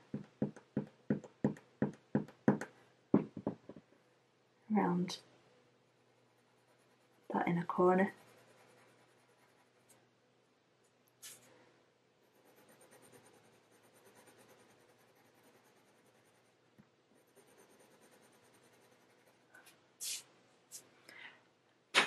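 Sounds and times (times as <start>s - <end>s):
pencil scratching on paper: 6.1s - 9.9s, 12.2s - 19.5s.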